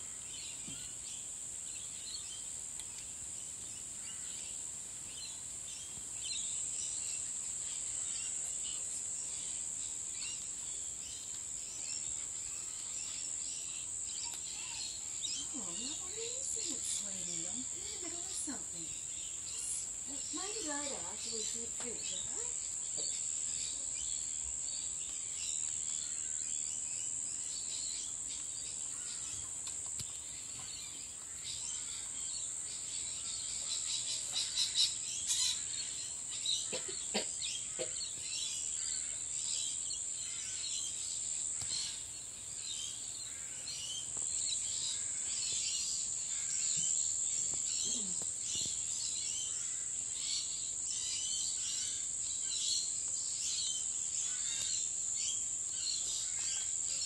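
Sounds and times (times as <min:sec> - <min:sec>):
high-pitched hiss: 0:00.0 - 0:57.0.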